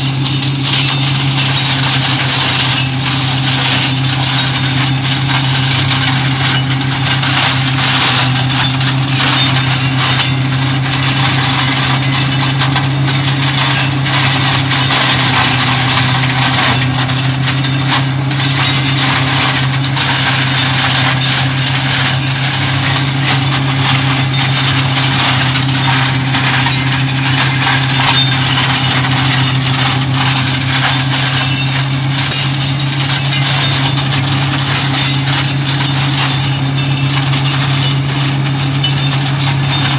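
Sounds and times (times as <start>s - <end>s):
mulcher shredding canes: 0.0s - 39.9s
tractor engine hum: 0.0s - 39.9s.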